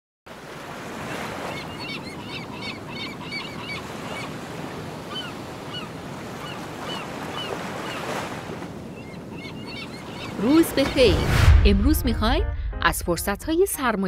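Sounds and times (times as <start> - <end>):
sea surf rushing: 0.3 - 12.2
birds calling: 1.3 - 11.0.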